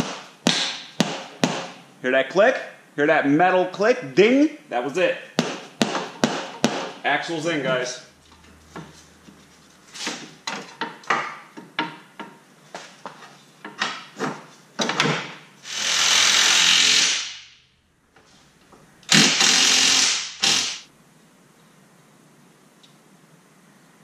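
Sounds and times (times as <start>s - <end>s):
knocks and clicks of parts: 10.4s - 12.4s, 13.6s - 15.4s
cordless power tool running: 19.1s - 20.8s.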